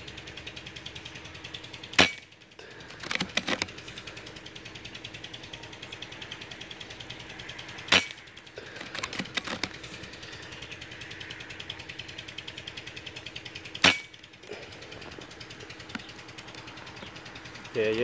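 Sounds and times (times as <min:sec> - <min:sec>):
air rifle shots: 0:01.9 - 0:02.3, 0:07.9 - 0:09.8, 0:13.8 - 0:14.2
rifle action clicks: 0:03.0 - 0:03.7.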